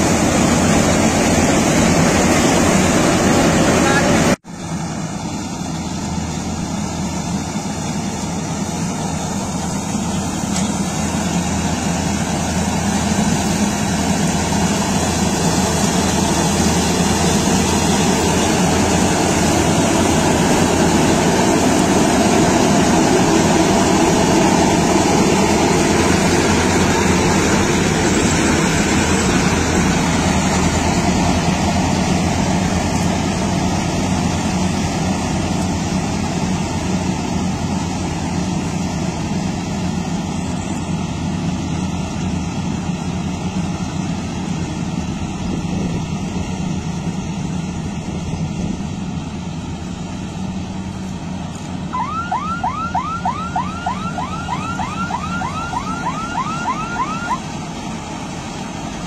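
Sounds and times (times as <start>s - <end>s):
combine harvester running: 0.0s - 59.0s.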